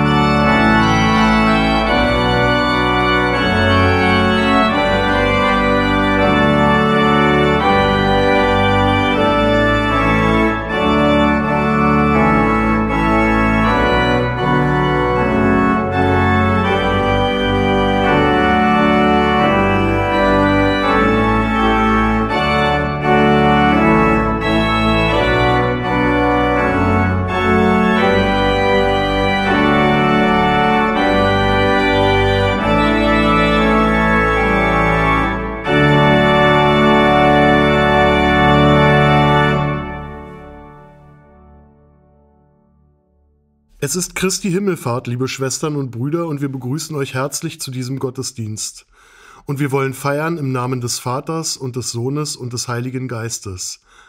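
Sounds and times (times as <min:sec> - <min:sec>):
organ playing chords: 0:00.0 - 0:54.0.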